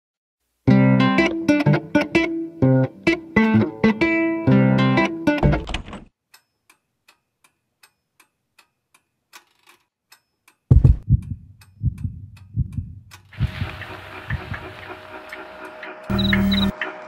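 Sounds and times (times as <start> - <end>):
guitar music: 0.7 - 5.6
clock ticking: 10.1 - 17.0
low uneven thumps: 10.7 - 14.9.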